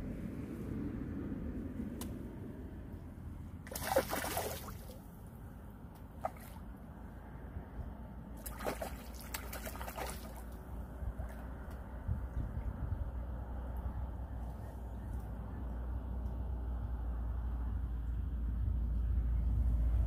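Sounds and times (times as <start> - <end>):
water splashing: 3.6 - 5.1, 6.2 - 6.6, 8.4 - 10.6.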